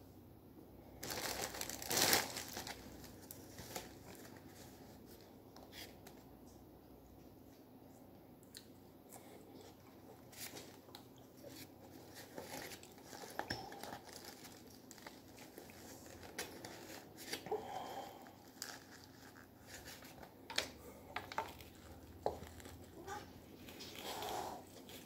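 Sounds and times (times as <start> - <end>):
paper plate crinkling: 18.5 - 25.0.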